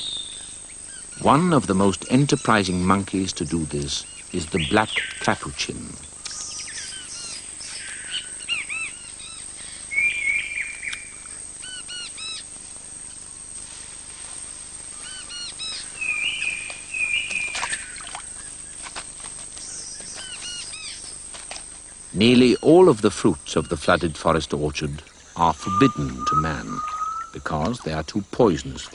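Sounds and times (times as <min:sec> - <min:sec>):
flat trilling bird calls: 0:00.0 - 0:13.5, 0:14.4 - 0:28.2
short high bird chirps: 0:25.6 - 0:27.4.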